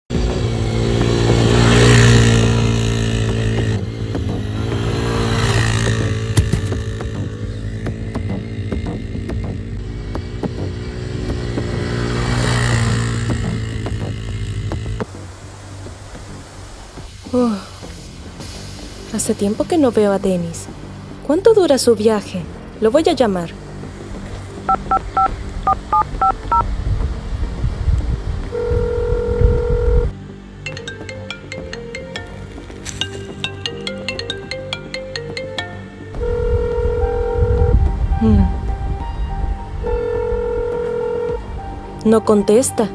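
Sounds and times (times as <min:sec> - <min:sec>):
small quad bike engine running: 0:00.1 - 0:15.1, 0:28.6 - 0:30.1, 0:36.2 - 0:38.2
phone keypad two-tone beeps: 0:24.7 - 0:26.6
phone ringing tone: 0:24.7 - 0:26.6, 0:28.6 - 0:30.1, 0:36.2 - 0:37.8, 0:39.9 - 0:41.5.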